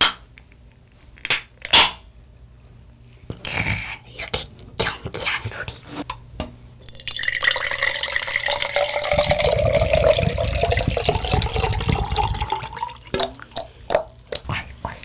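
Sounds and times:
drink pouring into glass jar: 0:06.8 - 0:14.4.

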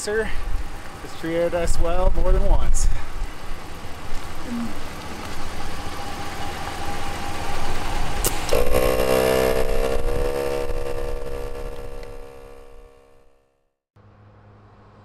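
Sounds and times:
sustained pitched tone: 0:06.1 - 0:13.4
air compressor running: 0:08.2 - 0:13.1.

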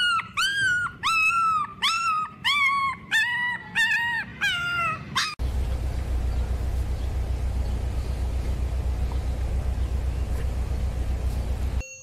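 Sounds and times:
puppy whining: 0:00.0 - 0:05.4.

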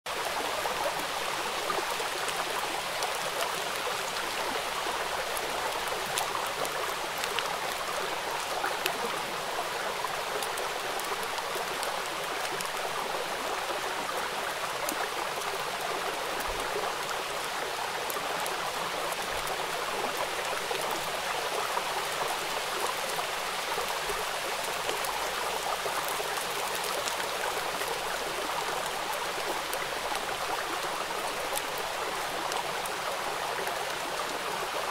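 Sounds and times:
heavy rain on brick paving: 0:00.1 - 0:34.9.

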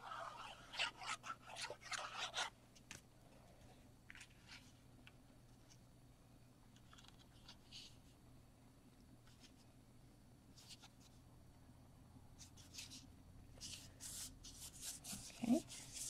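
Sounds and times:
glue tip scratching on cardstock: 0:00.0 - 0:02.5
faint card rustles and ticks: 0:06.7 - 0:08.1.

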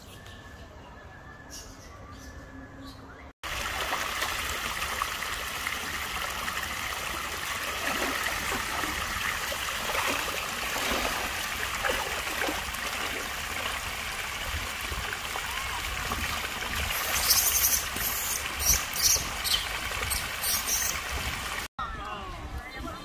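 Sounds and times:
stream water running over rock: 0:03.4 - 0:21.7.

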